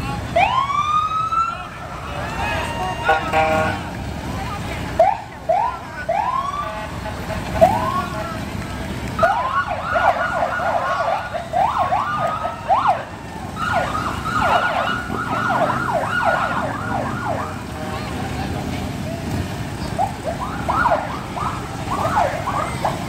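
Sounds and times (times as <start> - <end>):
police siren wailing and yelping: 0.3 - 3.8, 5.0 - 6.8, 9.2 - 17.7, 19.8 - 23.0.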